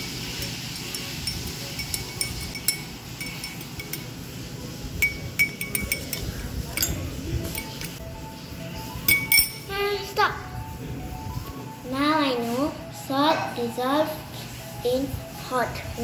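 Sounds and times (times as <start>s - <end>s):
metal spoon clinking in glass: 0.1s - 4.2s, 5.0s - 8.0s, 9.1s - 9.7s.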